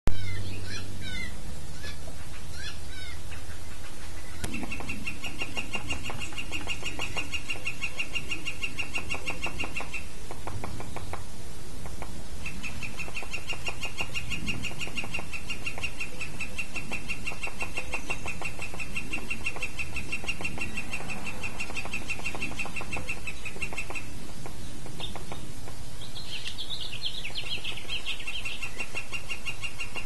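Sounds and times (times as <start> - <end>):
woodpecker long call: 0.1 - 30.0
woodpecker pecking at wood: 4.4 - 25.8.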